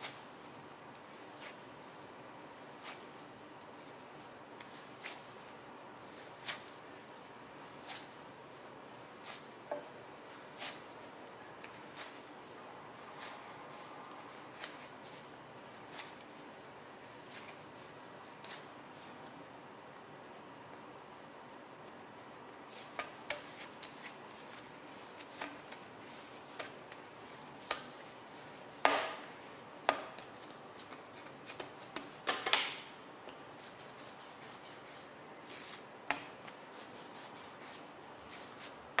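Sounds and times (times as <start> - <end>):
dough kneading taps and slaps: 28.8 - 30.6.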